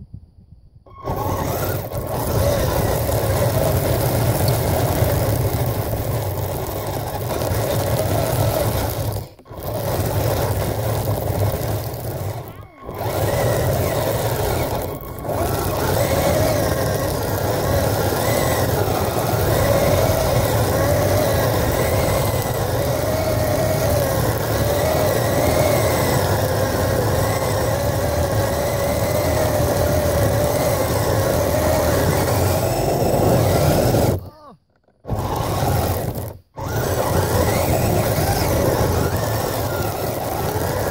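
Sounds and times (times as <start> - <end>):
electric motor whine: 0.9 - 40.9.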